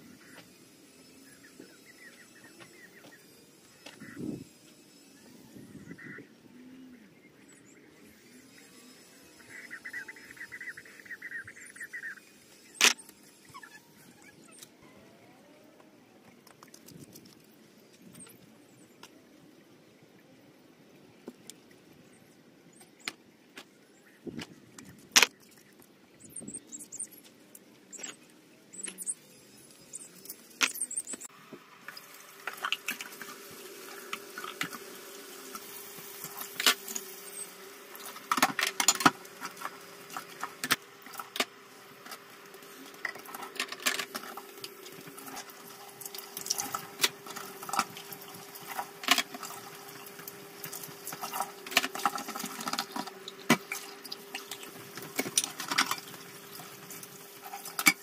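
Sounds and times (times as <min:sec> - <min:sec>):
tap water running into sink: 0:44.4 - 0:58.0.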